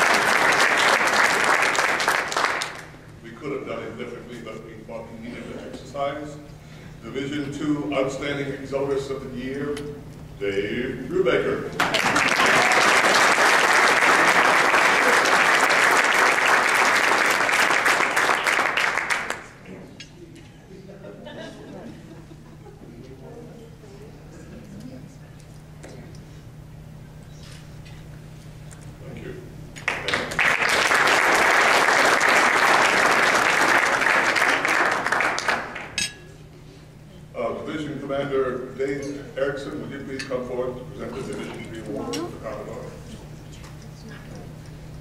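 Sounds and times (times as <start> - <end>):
crowd applauding: 0.0 - 3.0, 11.8 - 19.7, 29.8 - 36.0.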